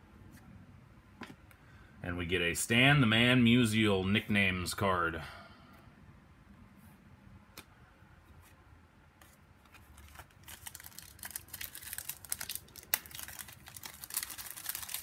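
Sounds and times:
wrapper snapping: 9.7 - 15.0
wrapper tearing and crinkling: 9.7 - 15.0.

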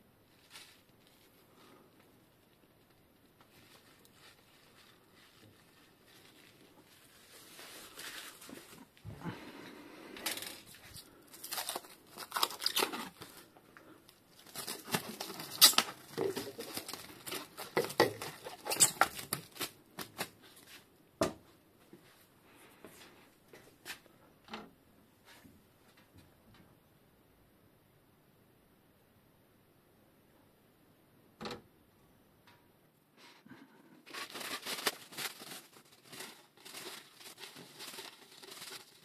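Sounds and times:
plastic film crinkling and tearing: 0.3 - 9.0, 10.2 - 20.6, 34.0 - 39.0.

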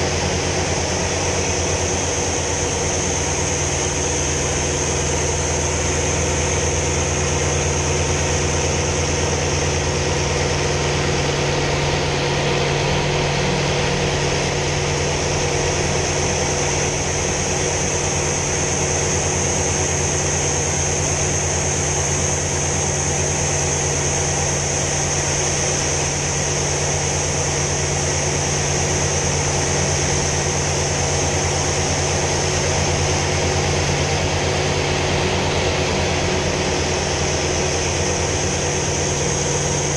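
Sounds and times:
propeller engine in flight: 0.0 - 39.9.

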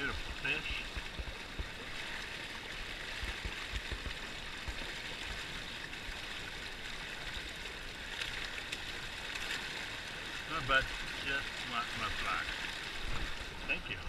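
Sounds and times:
river water rushing and splashing: 0.0 - 14.0.

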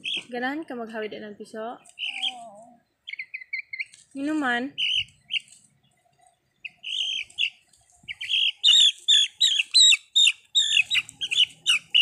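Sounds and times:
chick distress squawks: 2.0 - 2.5, 6.7 - 12.0.

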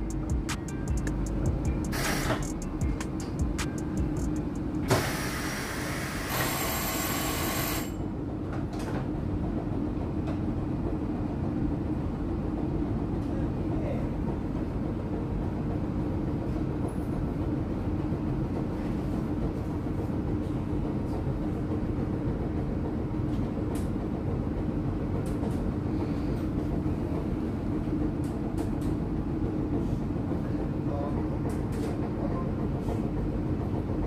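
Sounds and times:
steady hum: 0.0 - 6.2.

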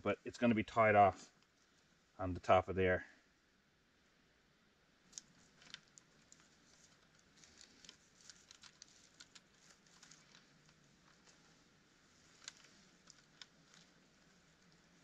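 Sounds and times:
wire clicks and rustles: 1.2 - 1.9, 5.0 - 15.0.

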